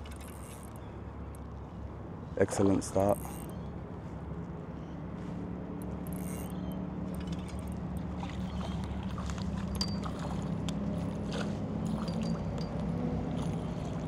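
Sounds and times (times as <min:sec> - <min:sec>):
fish splashing at water surface: 0:07.2 - 0:12.4.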